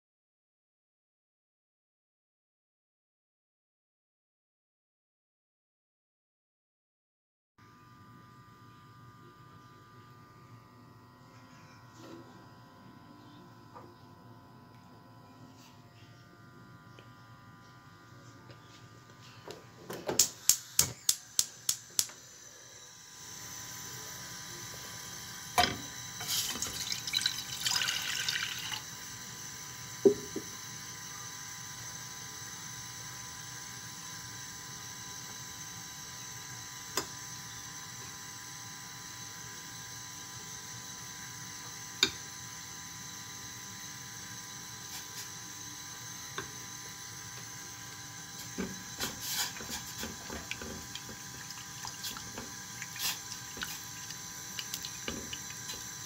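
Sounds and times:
water pouring into saucepan: 0:26.2 - 0:28.9.

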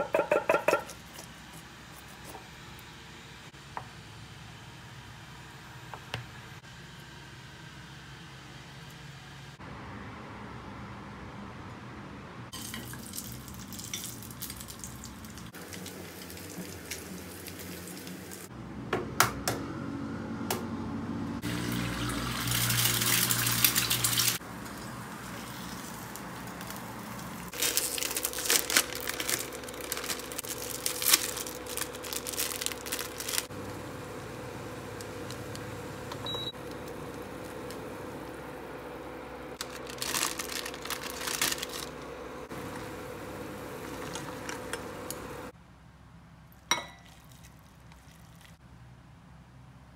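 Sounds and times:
egg sizzling in oil: 0:12.6 - 0:18.4
oil crackling and popping: 0:12.6 - 0:18.4, 0:21.6 - 0:38.0, 0:39.6 - 0:42.0.

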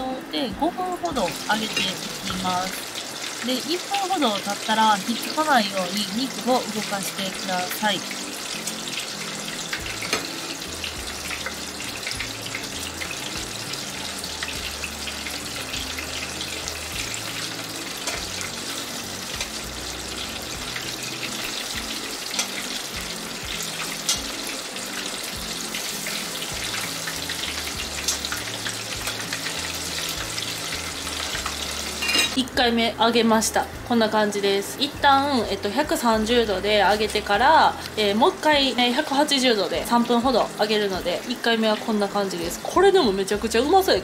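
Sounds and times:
background music: 0:00.0 - 0:44.0
chicken deep-frying in oil: 0:00.0 - 0:44.0
metal tongs clicking on pot: 0:28.0 - 0:28.4.

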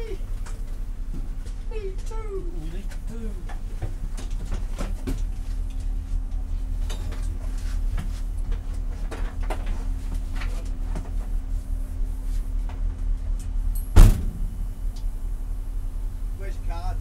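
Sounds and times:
car engine idling: 0:00.0 - 0:17.0
loud thump: 0:13.9 - 0:14.6.

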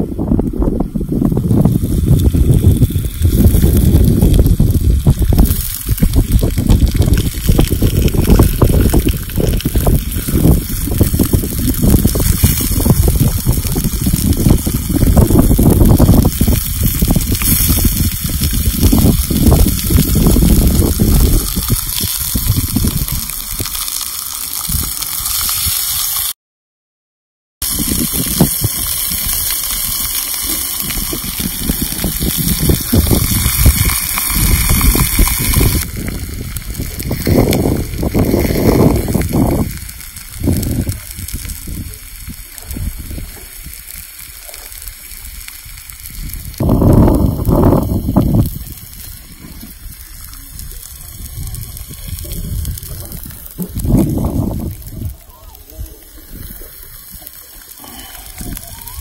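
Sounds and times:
wind buffeting microphone: 0:00.0 - 0:25.8, 0:27.6 - 0:59.0
steak sizzling on stone: 0:01.4 - 0:26.4, 0:27.6 - 0:59.0.

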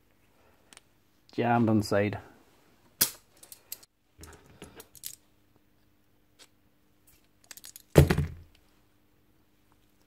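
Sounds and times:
metal parts clicking and clinking: 0:03.1 - 0:05.2, 0:07.4 - 0:08.0.

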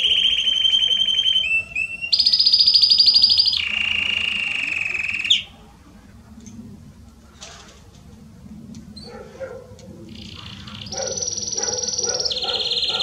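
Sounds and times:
canary singing trills: 0:00.0 - 0:05.7, 0:10.1 - 0:13.0.

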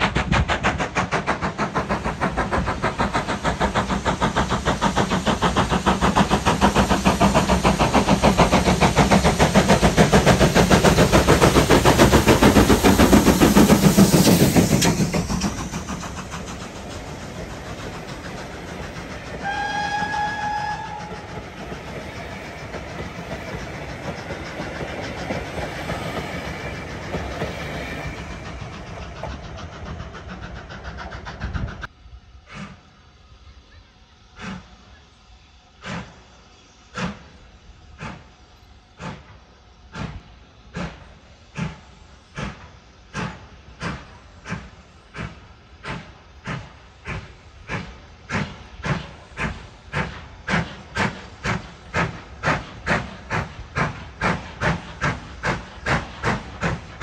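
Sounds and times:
steam train working: 0:00.0 - 0:57.0
steam whistle blast: 0:19.4 - 0:21.4.

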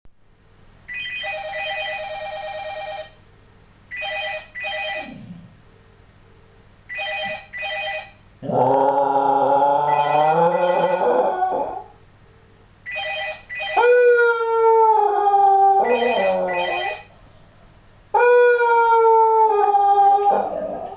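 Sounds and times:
telephone ringing: 0:00.9 - 0:03.2, 0:03.9 - 0:05.2, 0:06.9 - 0:08.3, 0:12.9 - 0:13.8, 0:15.9 - 0:17.1
dog howling: 0:08.4 - 0:12.0, 0:13.8 - 0:17.0, 0:18.1 - 0:20.9.

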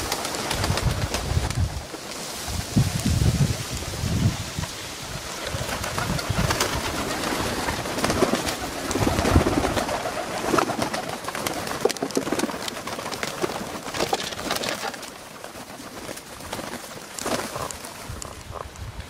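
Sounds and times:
wings flapping: 0:00.0 - 0:18.7
pigeons cooing: 0:04.7 - 0:15.2.

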